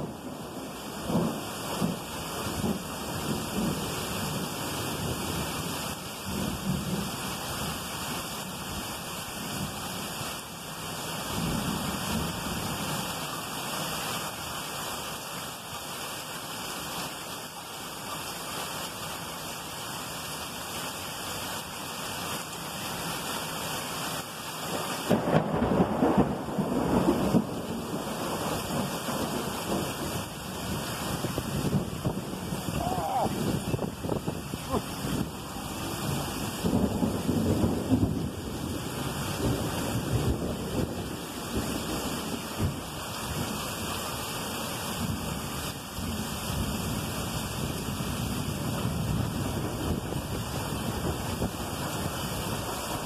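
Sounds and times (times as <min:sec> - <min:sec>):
thunder rumbling: 0:00.0 - 0:07.2, 0:24.6 - 0:43.8, 0:44.9 - 0:53.0
heavy rain hissing: 0:00.0 - 0:53.0.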